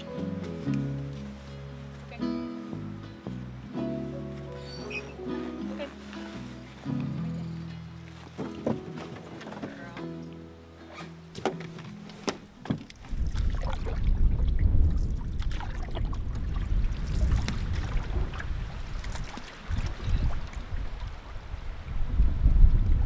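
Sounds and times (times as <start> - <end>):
knocks of pack loaded into canoe: 4.3 - 13.3
water splashing around canoe: 7.9 - 10.4, 11.0 - 21.8
wind rumbling on microphone: 12.9 - 23.0.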